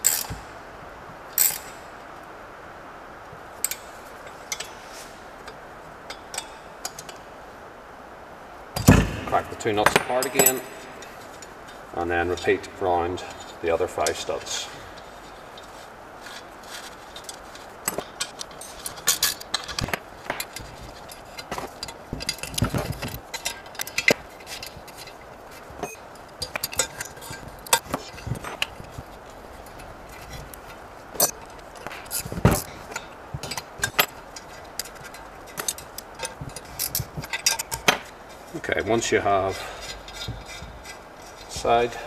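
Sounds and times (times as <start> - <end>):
metal tools clinking on engine: 9.7 - 11.8, 16.8 - 28.9, 31.2 - 38.1.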